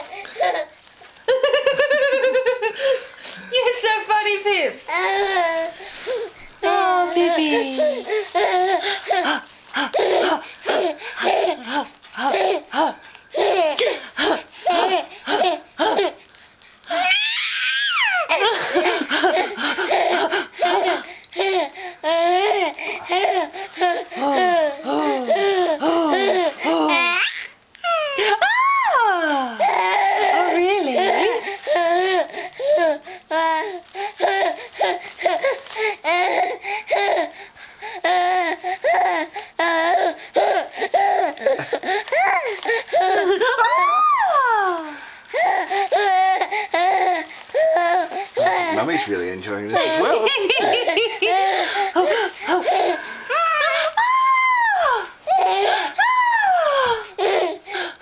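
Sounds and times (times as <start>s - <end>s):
baby high squeal: 16.9s - 18.3s
baby giggling: 18.1s - 21.6s, 49.8s - 53.8s.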